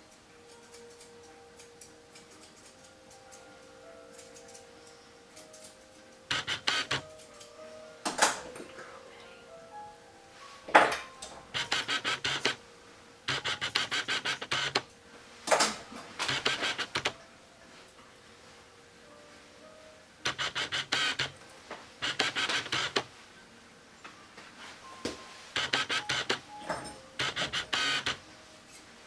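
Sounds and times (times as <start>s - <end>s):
grooming shears snipping: 13.3s - 14.9s.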